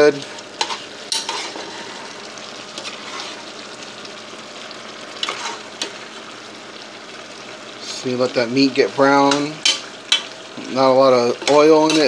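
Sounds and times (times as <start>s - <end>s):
ground beef sizzling in a pot: 0.0s - 12.0s
spoon stirring and scraping meat: 0.1s - 3.6s, 5.1s - 6.1s, 9.1s - 12.0s.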